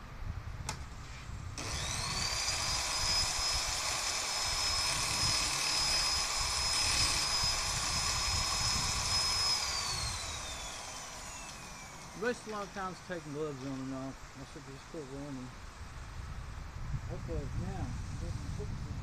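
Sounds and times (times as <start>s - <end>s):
electric drill whining: 1.6s - 13.0s.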